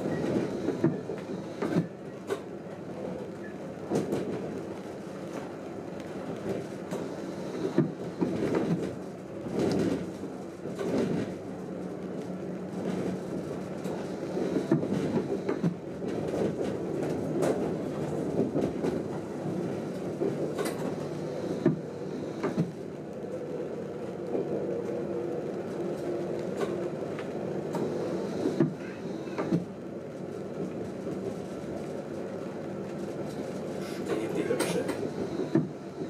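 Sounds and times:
train running hum: 0.0s - 36.0s.

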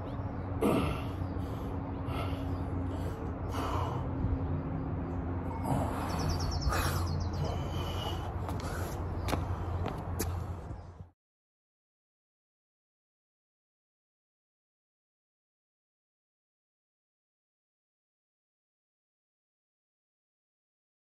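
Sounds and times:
steady low hum: 0.0s - 11.2s
man breathing hard: 0.6s - 4.5s, 5.4s - 10.8s.

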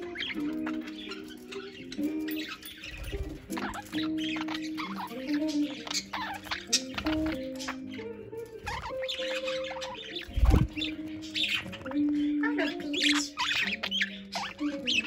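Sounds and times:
budgerigars chirping: 0.0s - 15.0s.

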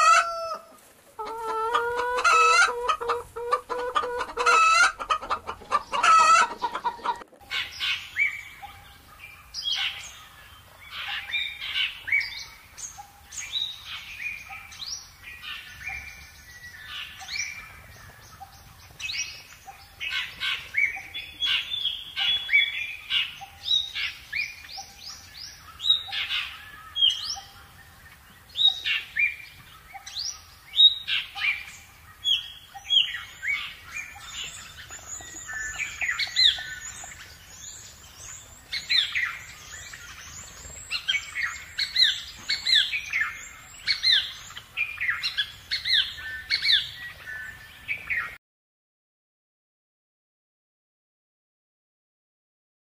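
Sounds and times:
songbirds chirping: 0.0s - 48.4s.

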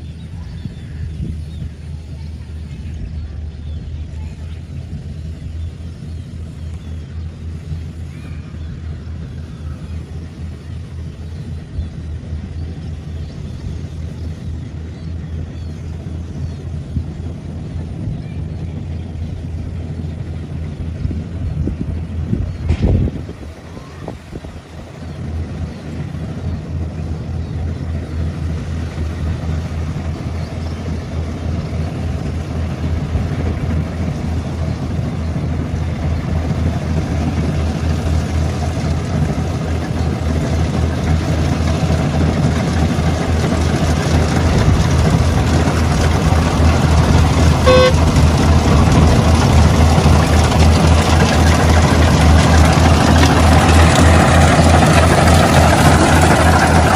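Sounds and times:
harvester engine drone: 0.0s - 56.9s
horn beep: 47.6s - 48.2s.

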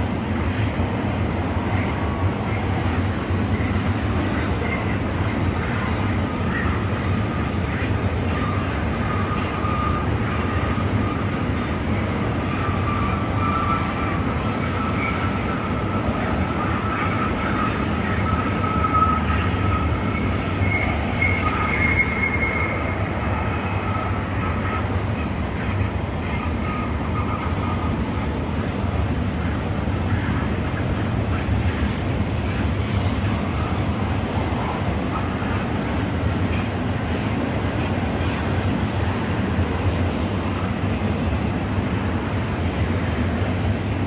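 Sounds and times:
train wheels rumbling on rail: 0.0s - 44.0s
high wheel squeal: 17.0s - 24.8s
higher wheel squeal: 18.2s - 24.2s.

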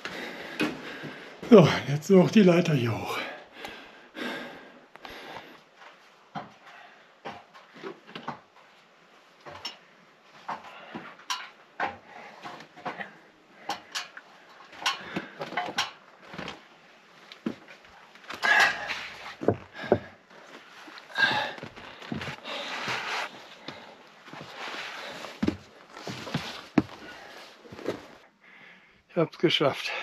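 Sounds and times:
hands and boots on ladder rungs: 0.0s - 1.8s, 5.0s - 16.7s, 17.4s - 28.2s
heavy breathing: 0.0s - 1.8s, 3.1s - 5.7s, 6.6s - 7.3s, 10.5s - 11.4s, 18.4s - 29.1s.

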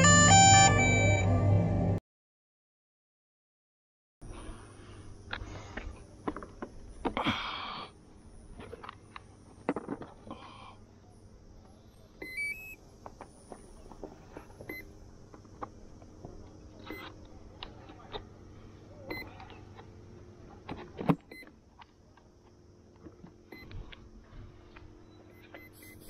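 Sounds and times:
short electronic beeps: 0.0s - 1.5s, 12.2s - 12.8s, 25.3s - 26.0s
faint electronic hum: 4.2s - 26.0s.

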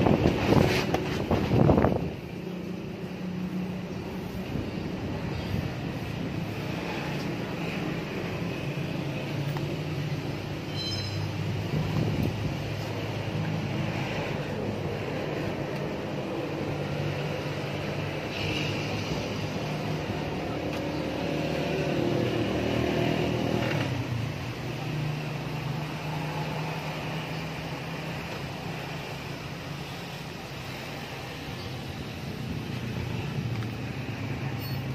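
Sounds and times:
scooter engine revving and idling: 11.4s - 29.7s.

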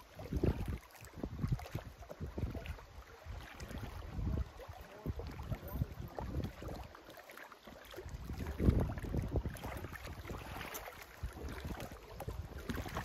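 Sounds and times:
wind buffeting microphone: 0.0s - 6.9s, 7.9s - 13.0s
water washing against rocks: 8.0s - 13.0s.

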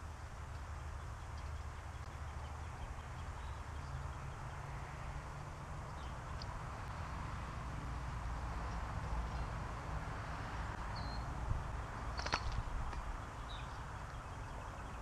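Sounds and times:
bird chirps: 10.9s - 11.3s.

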